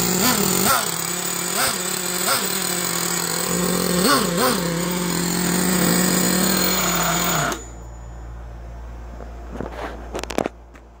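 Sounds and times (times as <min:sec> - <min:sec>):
model engine idling: 0:00.0 - 0:07.7.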